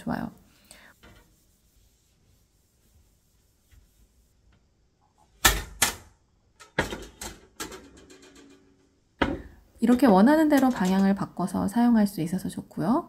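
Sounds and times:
hinged panels knocking and clacking: 6.6 - 11.1.

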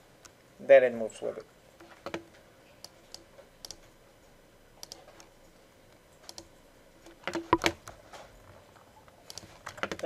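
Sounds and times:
mouse and keyboard clicks: 2.8 - 3.9, 4.8 - 5.3, 6.2 - 7.9, 9.3 - 10.0.

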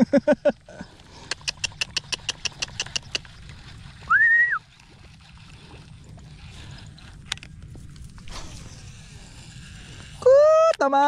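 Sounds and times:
rising whistle: 4.1 - 4.6.

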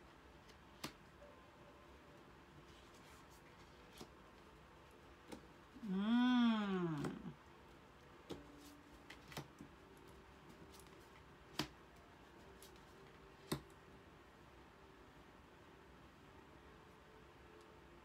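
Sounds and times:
woman wordless vocal sound: 5.8 - 7.4.

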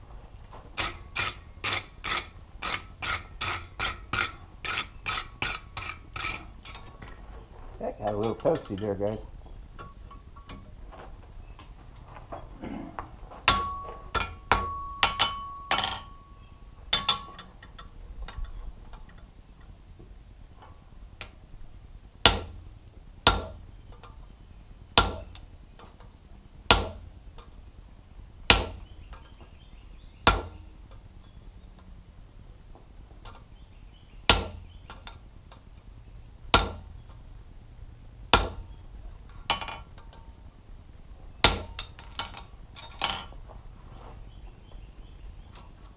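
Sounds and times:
ringing metal tone: 0.8 - 7.2, 8.0 - 10.7, 13.5 - 18.6, 41.4 - 43.8
hammer striking punch on anvil: 22.3 - 22.6, 23.3 - 23.7, 25.0 - 25.4, 26.7 - 27.1, 28.5 - 28.9, 30.3 - 30.6, 34.3 - 34.7, 36.6 - 36.9, 38.3 - 38.7, 41.4 - 42.4.

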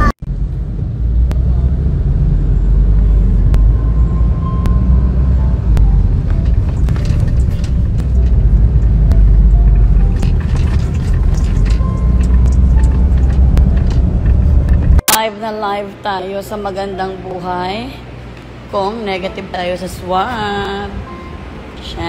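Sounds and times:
car driving rumble: 0.0 - 15.0.

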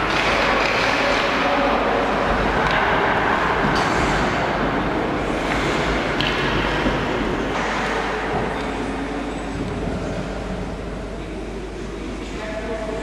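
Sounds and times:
sharp clicks of sticks or pucks: 0.0 - 1.7, 2.3 - 4.4, 5.3 - 8.8.

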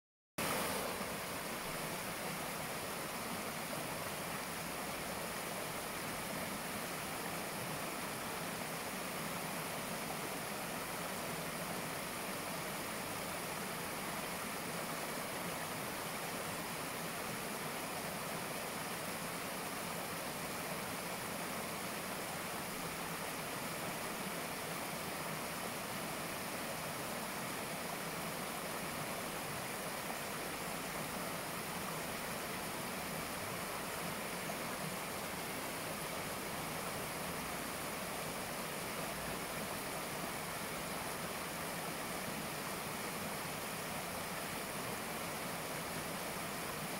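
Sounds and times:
stream rushing over rocks: 0.4 - 46.9.

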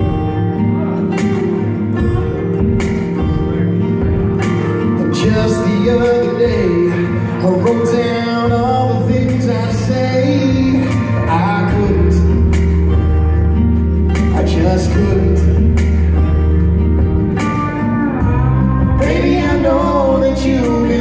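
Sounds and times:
person singing: 0.0 - 16.8, 17.4 - 21.0
live band playing: 0.0 - 21.0.

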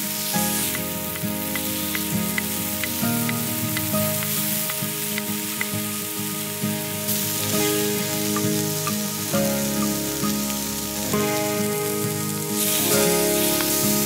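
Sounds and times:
background music: 0.0 - 14.0
steaks sizzling on a griddle: 0.0 - 14.0.

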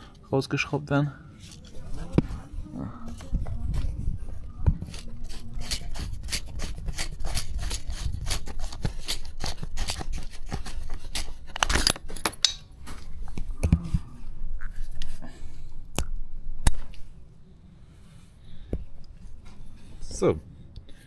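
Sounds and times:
scratchy rustle: 3.2 - 11.6.

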